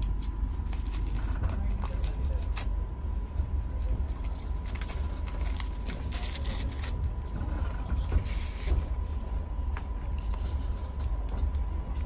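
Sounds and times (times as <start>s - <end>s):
train coach rumbling: 0.0s - 12.0s
creaks and rattles: 0.8s - 2.2s, 3.8s - 9.2s
paper packet crinkling: 3.8s - 7.1s.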